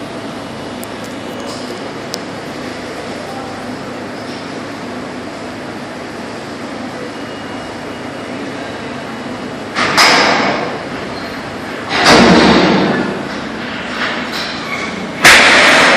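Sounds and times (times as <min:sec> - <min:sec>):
subway train rumble: 0:00.0 - 0:15.9
loud sudden bursts: 0:15.2 - 0:15.9.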